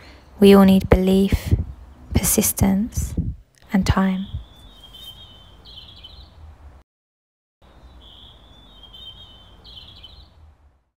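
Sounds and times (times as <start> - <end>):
small bird singing: 3.6 - 6.5, 7.6 - 10.5.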